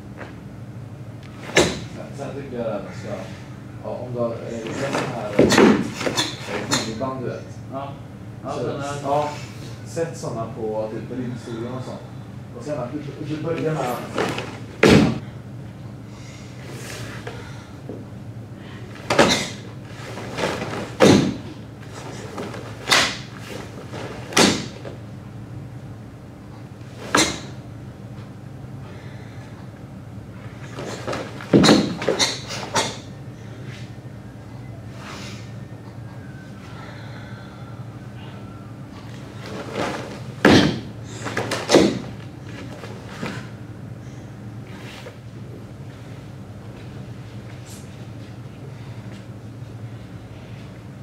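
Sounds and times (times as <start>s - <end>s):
bare feet stamping on wooden floor: 14.8s - 15.2s.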